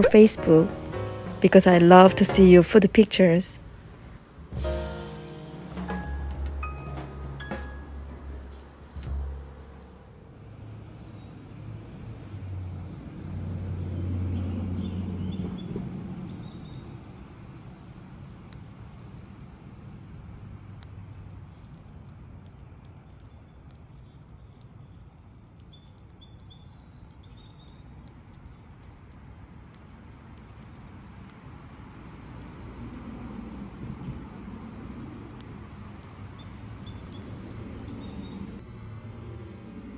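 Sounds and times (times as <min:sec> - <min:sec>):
steady low hum: 0:00.0 - 0:10.3
low rumble: 0:00.0 - 0:10.7
small birds chirping: 0:14.7 - 0:39.5.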